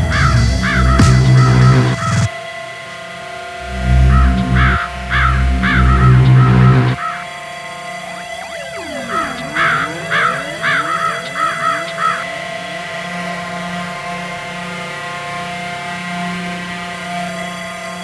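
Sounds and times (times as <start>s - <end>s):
falling pitch sweeps: 0.0s - 2.3s, 3.3s - 14.3s
droning noise music: 0.0s - 18.0s
harsh bird caws: 7.0s - 7.3s, 9.0s - 12.4s.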